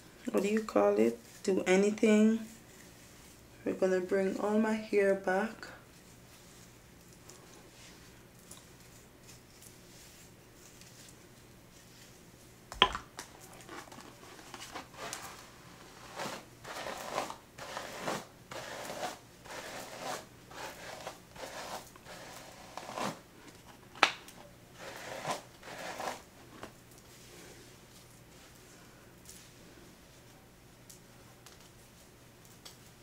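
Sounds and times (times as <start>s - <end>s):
hairbrush strokes through hair: 0.4s - 3.5s, 14.8s - 23.2s, 24.8s - 26.3s.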